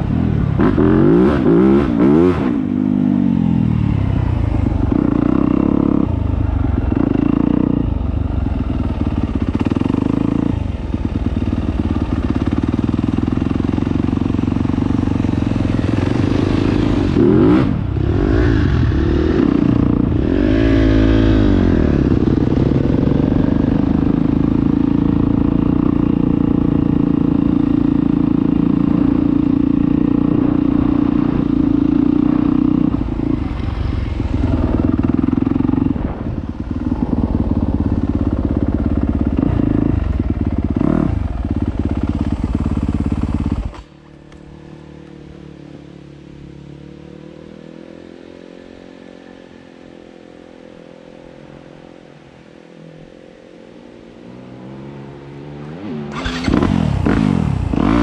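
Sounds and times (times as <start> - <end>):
dirt bike engine revving: 0.0 - 3.7, 9.2 - 43.8, 55.4 - 58.0.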